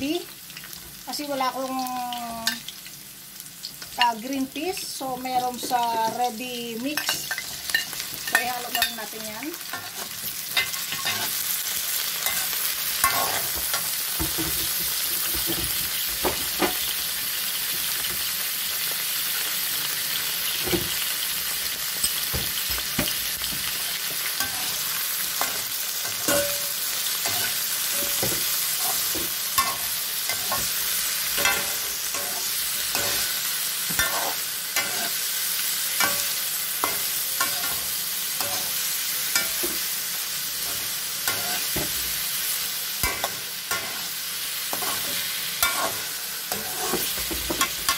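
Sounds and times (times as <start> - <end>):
vegetables sizzling in hot oil: 0.0 - 47.9
metal spatula scraping a wok: 12.2 - 13.9, 27.2 - 35.2, 40.6 - 42.0, 43.0 - 47.9.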